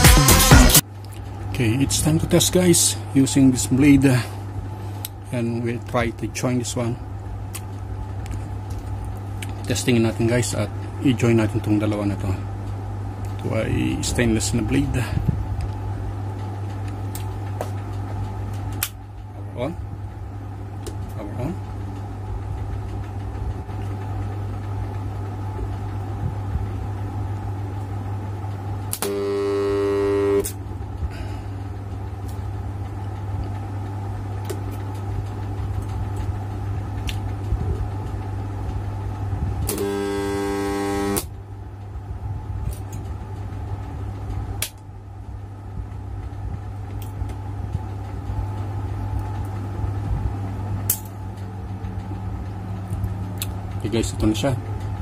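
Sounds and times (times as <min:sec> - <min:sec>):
transformer humming: 0:00.0 - 0:00.8, 0:28.7 - 0:32.9, 0:39.6 - 0:41.4
welder loud buzzing: 0:00.0 - 0:00.8, 0:28.9 - 0:30.6, 0:39.7 - 0:41.3.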